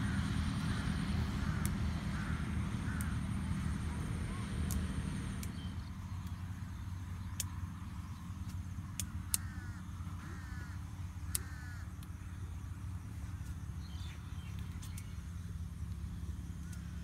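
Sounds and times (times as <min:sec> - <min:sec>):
bird calling: 0:00.0 - 0:04.6, 0:09.0 - 0:12.7
sharp clicks: 0:02.9 - 0:03.2, 0:04.6 - 0:06.4, 0:08.4 - 0:09.6, 0:11.2 - 0:12.2.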